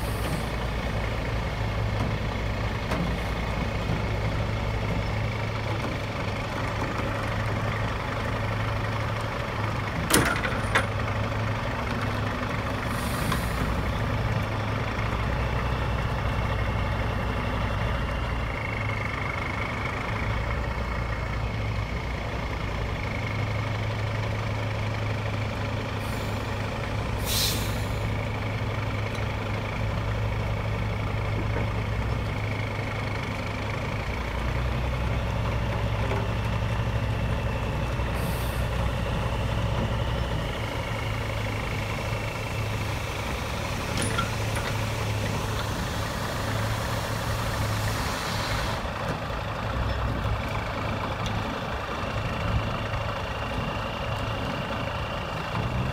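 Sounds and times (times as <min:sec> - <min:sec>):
heavy diesel engines running: 0:00.0 - 0:55.9
short hisses of air: 0:27.2 - 0:28.0, 0:47.0 - 0:48.8.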